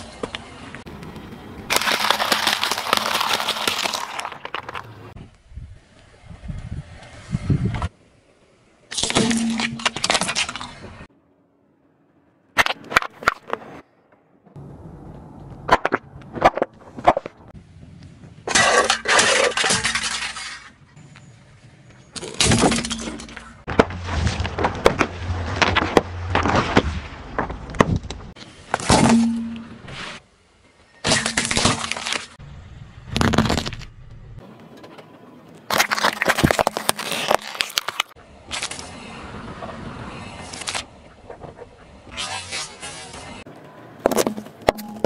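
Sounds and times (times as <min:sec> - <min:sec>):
tyre crushing objects: 0:01.7 - 0:05.2, 0:22.2 - 0:29.7, 0:33.1 - 0:33.9, 0:35.7 - 0:38.8, 0:44.0 - 0:45.0.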